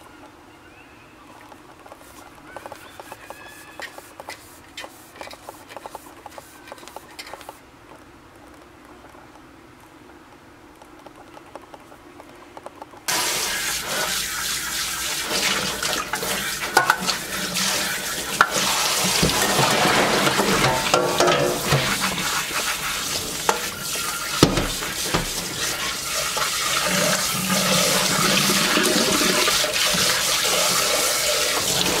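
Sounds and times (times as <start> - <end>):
faucet spraying into metal pot: 13.1 - 32.0
pot knocking in sink: 16.7 - 17.2, 18.3 - 25.8.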